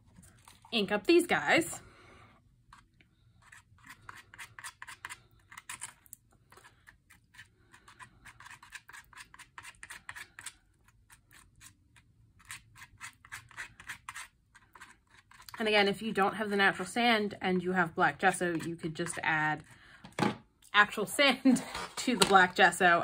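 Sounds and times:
palette knife scraping gritty paste: 2.7s - 16.9s, 18.1s - 19.6s.

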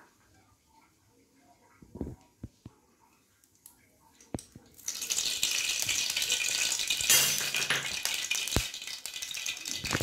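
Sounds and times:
oil crackling and spitting: 4.7s - 10.0s.

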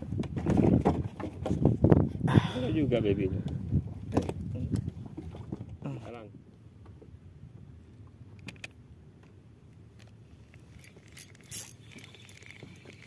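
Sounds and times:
fishing reel spinning: 10.4s - 13.0s.

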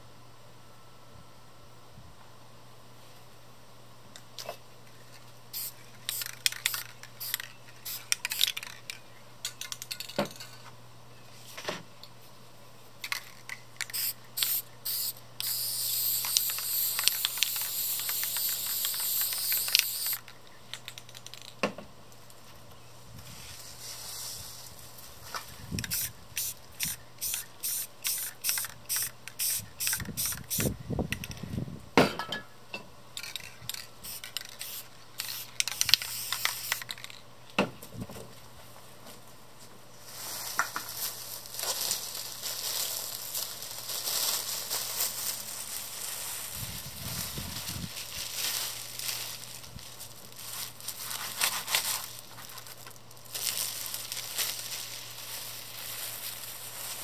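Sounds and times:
spray paint can hissing: 5.5s - 8.8s, 13.8s - 20.2s, 25.8s - 30.7s, 33.7s - 37.1s
spray can clicks: 13.8s - 20.2s, 33.7s - 37.2s.

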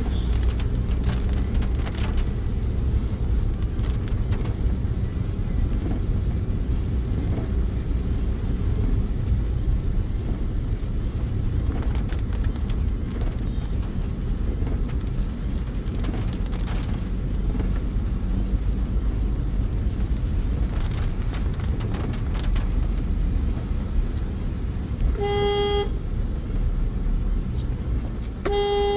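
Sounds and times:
engine and tyre rumble: 0.0s - 28.9s
rain hissing on car body: 0.0s - 28.9s
car horn honking: 25.2s - 26.0s, 28.4s - 28.9s.

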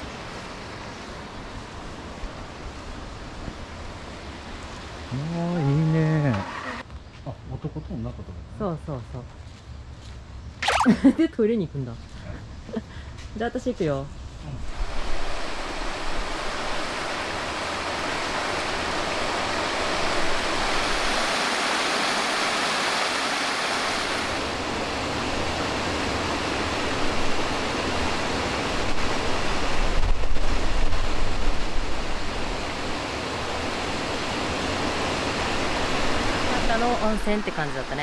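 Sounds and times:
river water rushing: 14.8s - 30.0s, 30.6s - 38.0s.

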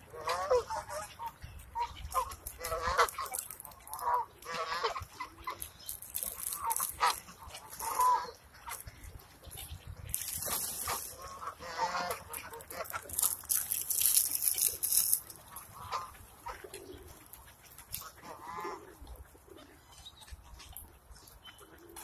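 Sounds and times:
geese and ducks calling: 0.0s - 13.8s, 14.4s - 22.0s
rushing rustling wings: 10.1s - 11.4s.

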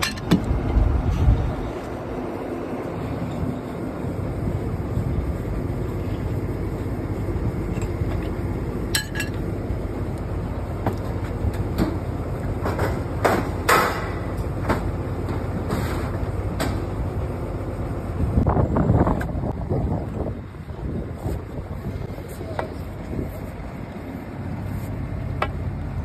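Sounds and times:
steel pipes clanking: 0.0s - 1.9s, 7.6s - 9.5s
steady low rumble: 0.0s - 26.0s.

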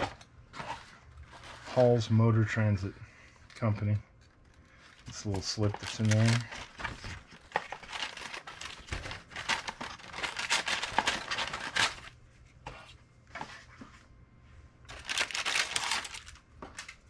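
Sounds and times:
paper rustling and crinkling: 0.0s - 2.0s, 3.5s - 14.0s, 14.9s - 17.0s.

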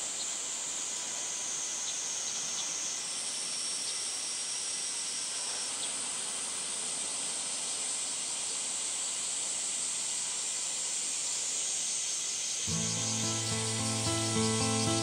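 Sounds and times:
cicadas chorus: 0.0s - 15.0s
music: 12.7s - 15.0s.

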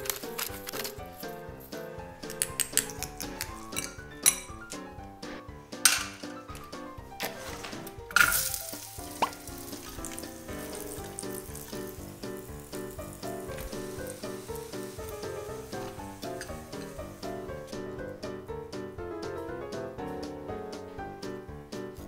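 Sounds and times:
background music: 0.0s - 22.0s
nuggets sizzling in oil: 8.1s - 17.3s.

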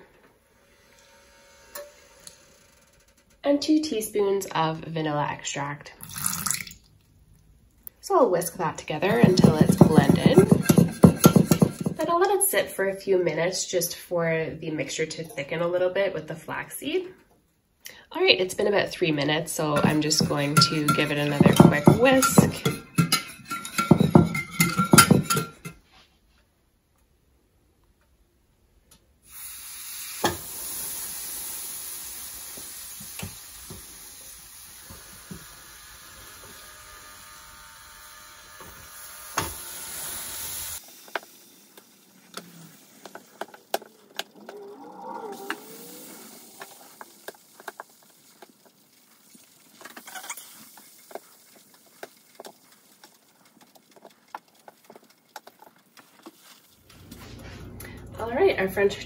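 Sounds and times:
bread sizzling on a griddle: 29.3s - 43.5s, 45.5s - 54.6s.

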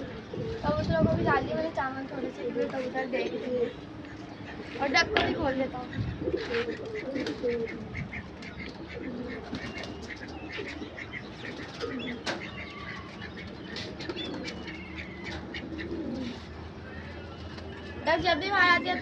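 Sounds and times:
pigeons cooing: 0.0s - 19.0s.

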